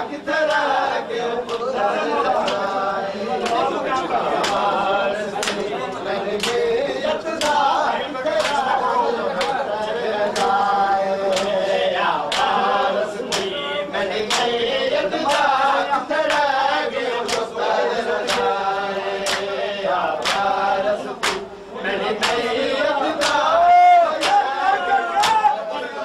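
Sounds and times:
men chanting in unison: 0.0 - 26.0
hand slaps on bare chests: 11.3 - 11.6, 12.3 - 12.6, 14.3 - 14.6, 17.2 - 17.5, 18.2 - 18.6, 19.2 - 19.5, 20.2 - 20.5, 21.2 - 21.5, 24.2 - 24.4, 25.2 - 25.5.

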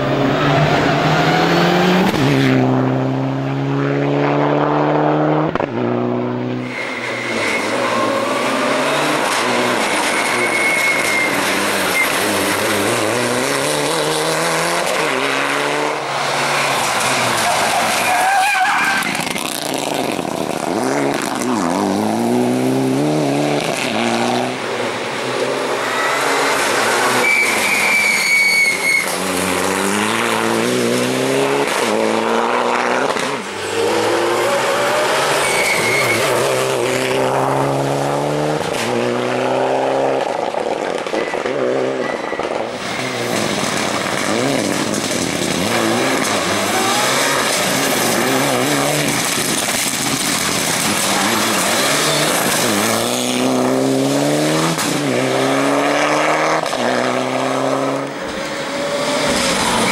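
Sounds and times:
car engine revving: 0.0 - 28.0, 29.1 - 42.0, 42.9 - 59.9
short high squeals: 6.6 - 12.8, 25.8 - 29.2, 35.2 - 36.5.

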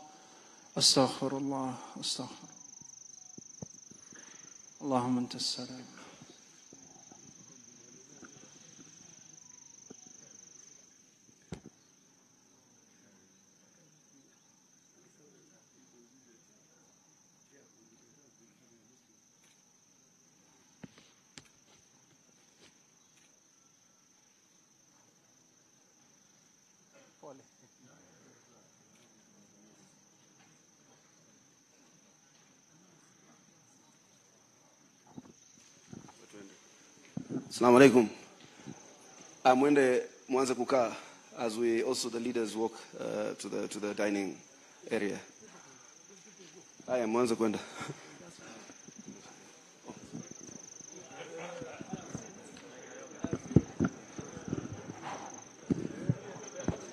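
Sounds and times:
faint crickets trilling: 0.0 - 56.9
low murmur: 35.1 - 56.9.

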